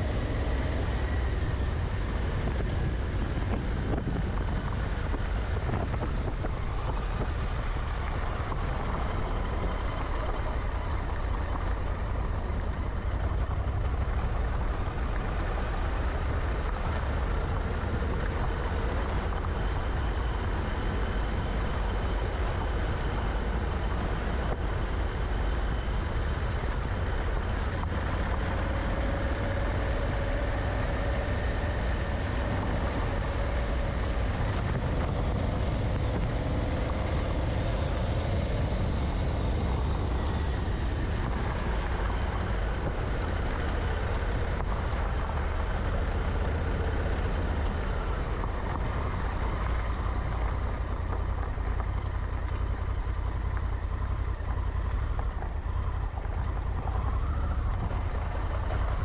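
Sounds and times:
motorcycle engine running: 0.0 - 59.0
tyres rumbling on gravel: 0.0 - 59.0.

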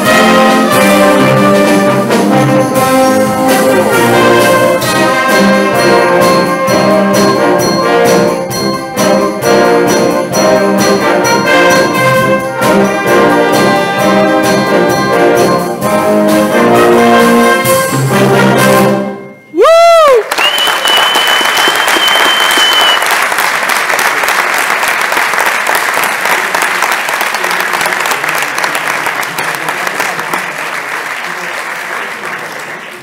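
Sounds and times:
concert band playing brass music: 0.0 - 19.5
high whistle: 19.3 - 23.2
audience applause: 19.9 - 33.0.

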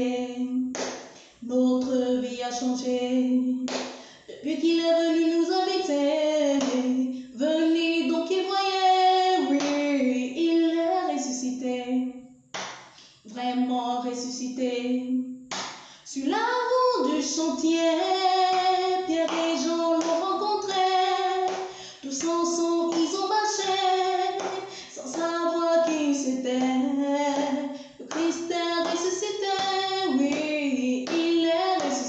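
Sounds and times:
woman singing a hymn: 0.0 - 0.7, 1.4 - 3.7, 4.3 - 12.2, 13.3 - 15.3, 16.1 - 32.0
breaths: 3.9 - 4.3, 7.1 - 7.4, 15.7 - 16.1, 21.6 - 22.1, 24.5 - 25.0, 27.7 - 28.0.

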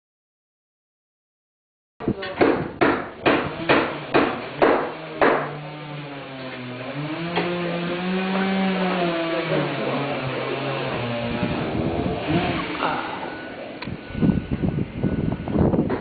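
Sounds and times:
sharp knocks: 2.3 - 5.6
sustained bending pitches: 7.1 - 15.0.

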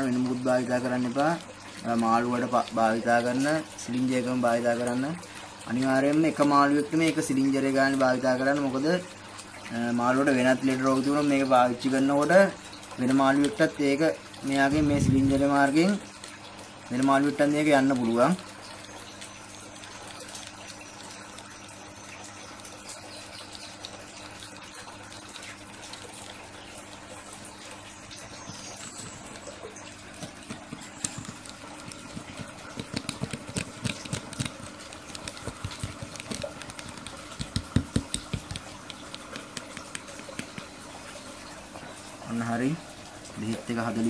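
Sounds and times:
water trickling: 0.0 - 44.0
small clicks and knocks: 28.4 - 40.8.

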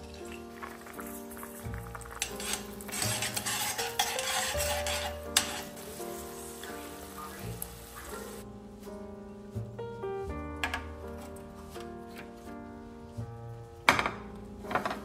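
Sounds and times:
eggs sizzling in oil: 0.0 - 8.4
soft background music: 0.0 - 15.0.

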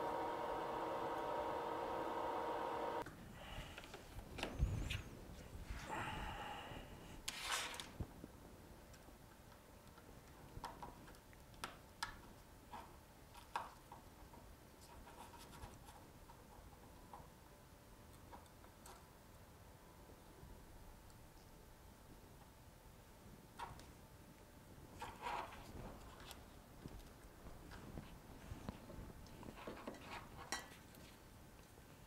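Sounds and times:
small clicks and taps: 8.9 - 14.4.

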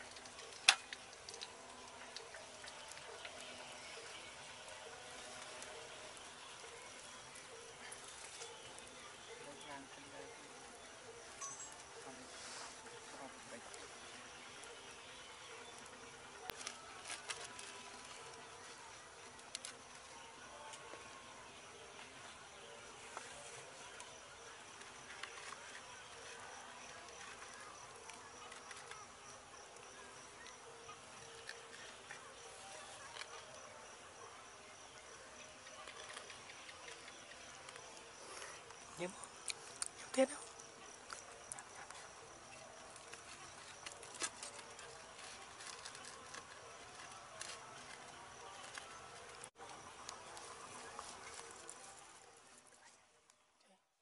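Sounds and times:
insects droning: 0.0 - 52.3.

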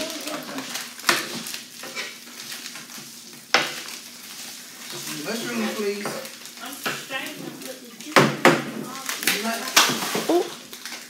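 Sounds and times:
spatula stirring and turning: 0.0 - 8.1
meat sizzling on a griddle: 0.0 - 11.0.

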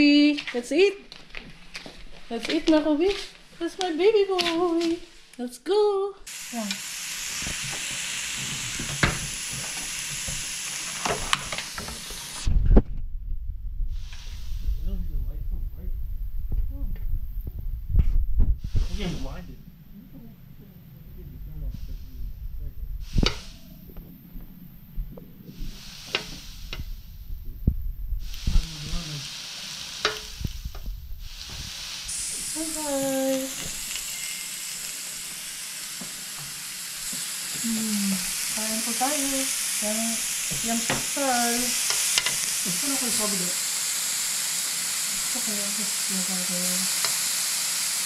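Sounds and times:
beef sizzling on grill pan: 6.3 - 12.5, 23.0 - 23.6, 25.5 - 27.3, 28.2 - 48.0
low rumbling: 12.5 - 29.3, 30.3 - 33.9
metal tongs clicking on pan: 30.0 - 30.3.

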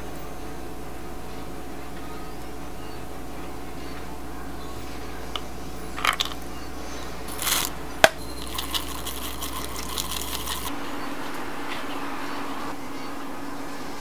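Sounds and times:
measuring cup and spoon clinking: 5.4 - 6.5, 7.3 - 10.7
seeds pattering into bowl: 5.4 - 6.5, 7.3 - 10.7.

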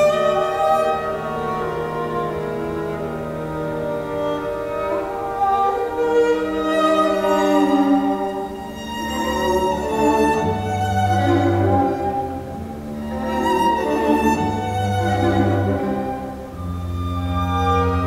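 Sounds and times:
cello: 0.0 - 18.0
violin: 0.0 - 18.0.

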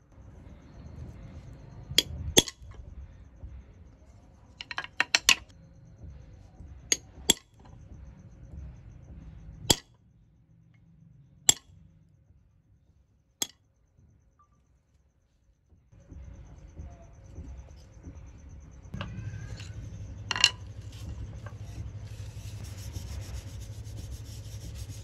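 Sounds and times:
hammer tapping metal punch: 2.0 - 2.6.

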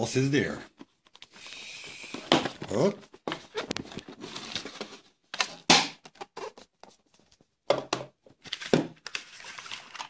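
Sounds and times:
cardboard scrape: 2.0 - 5.1
cardboard rustling and sliding: 2.3 - 5.2.

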